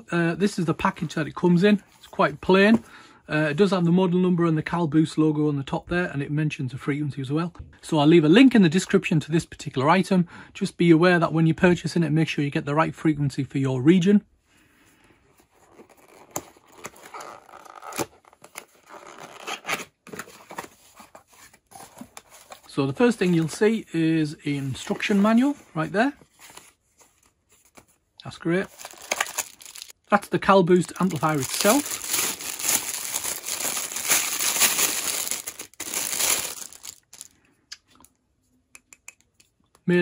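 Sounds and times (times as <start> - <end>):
plastic bag crinkling: 28.7 - 30.0, 30.7 - 37.3.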